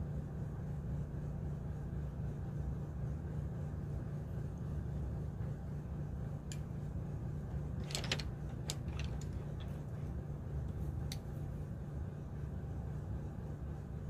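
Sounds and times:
wooden pencils clattering: 7.7 - 9.8.

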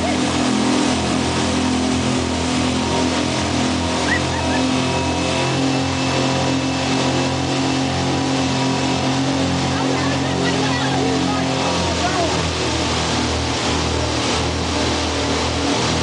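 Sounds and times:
boat wake and spray rushing: 0.0 - 16.0
motorboat engine running: 0.0 - 16.0.

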